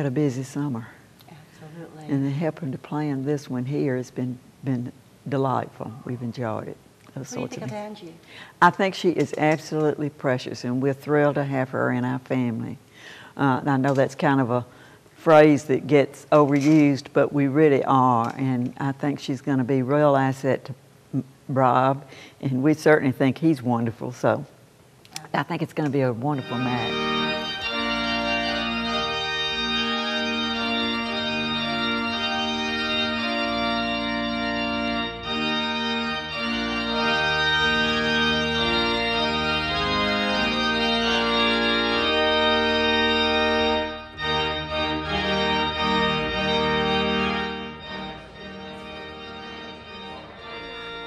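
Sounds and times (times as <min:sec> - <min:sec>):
church organ playing held chords: 0:26.1 - 0:51.0.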